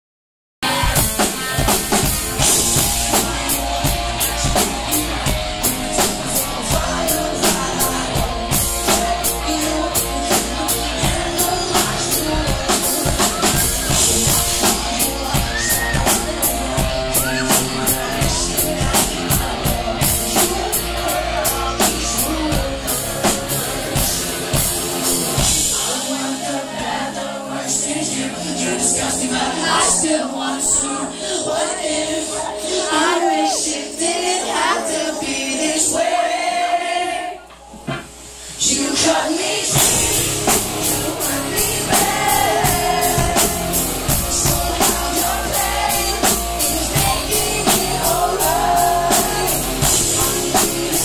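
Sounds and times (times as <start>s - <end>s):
fast drum kit beat: 0.6s - 27.0s, 39.6s - 51.0s
rock band playing: 0.6s - 33.4s, 39.6s - 51.0s.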